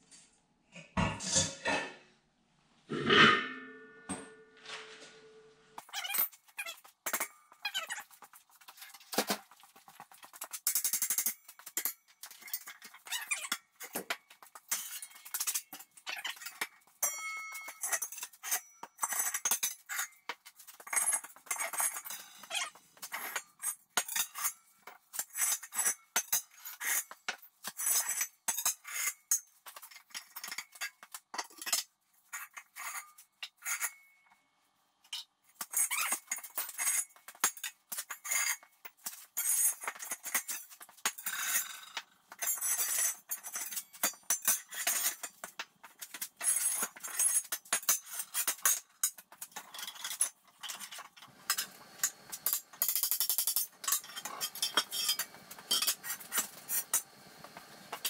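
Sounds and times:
metal parts set down on concrete: 2.9s - 6.4s
steel disc blades clanking and ringing: 17.0s - 19.7s, 52.5s - 57.0s.

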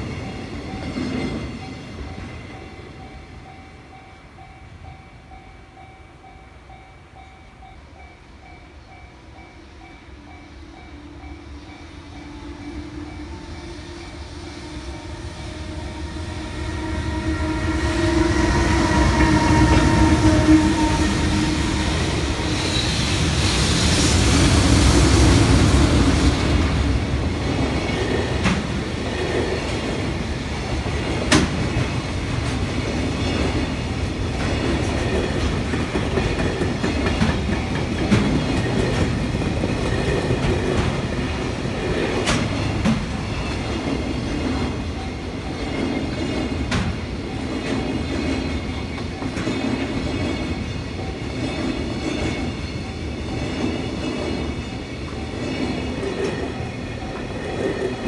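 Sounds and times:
freight train wheels rumbling: 0.0s - 58.0s
clickety-clack over rail joints: 26.4s - 58.0s.

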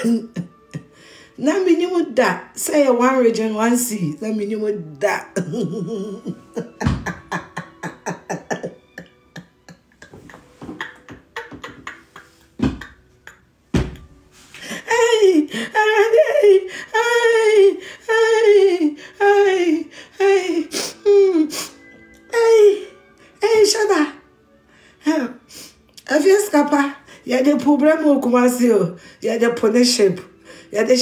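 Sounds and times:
woman laughing hard: 0.0s - 1.0s, 5.4s - 13.5s, 14.7s - 19.5s
breaths: 0.9s - 1.4s, 24.7s - 25.8s, 29.0s - 29.2s, 30.4s - 30.7s.

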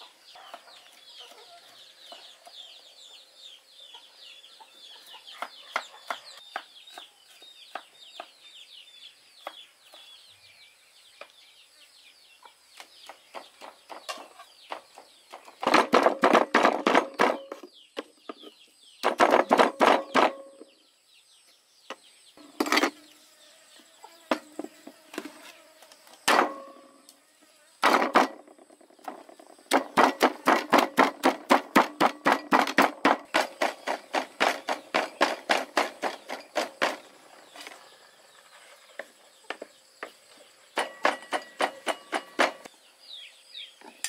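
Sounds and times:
cleavers chopping on wooden board: 14.7s - 17.7s, 19.0s - 20.5s, 26.3s - 26.7s, 27.8s - 28.5s, 29.7s - 37.1s, 40.8s - 42.7s.

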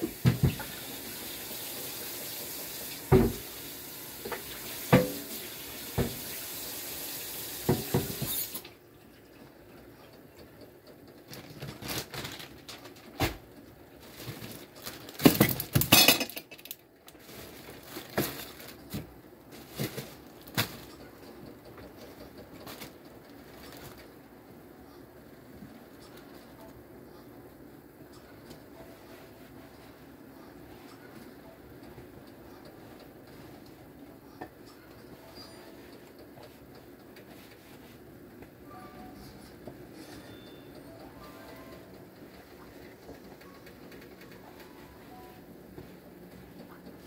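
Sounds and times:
tap running into a sink: 0.0s - 1.0s, 2.4s - 6.4s, 7.5s - 8.6s
dishes clinking and knocking: 7.7s - 8.4s, 15.7s - 16.7s.

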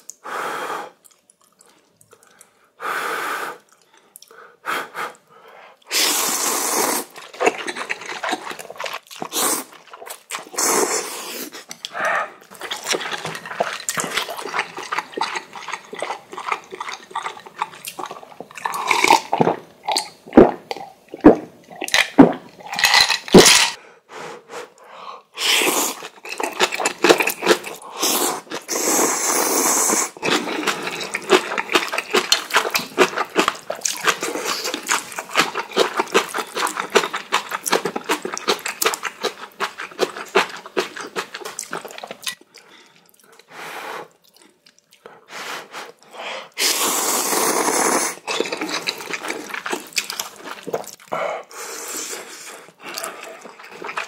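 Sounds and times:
slurping and chewing noodles: 5.8s - 23.7s, 25.4s - 54.0s
man gulping water: 11.7s - 23.8s.

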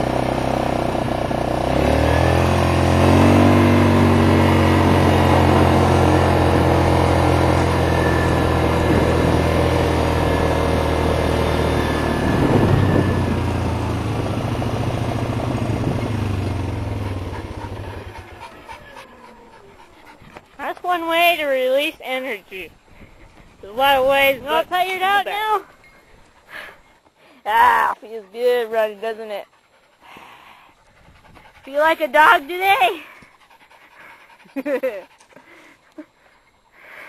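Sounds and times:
vehicle engine revving: 0.0s - 19.9s.

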